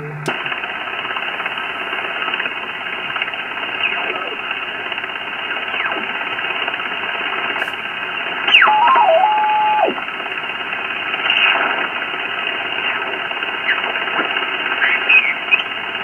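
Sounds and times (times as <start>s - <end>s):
radio band hiss: 0.0s - 16.0s
faint sweeping radio tones: 1.5s - 6.6s, 7.5s - 10.1s, 12.6s - 15.8s
falling radio whistle: 8.5s - 10.0s.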